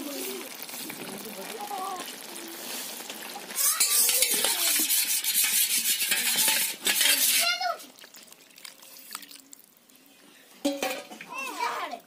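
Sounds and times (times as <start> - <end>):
metal spoon scraping steel bowl: 3.8 - 7.5.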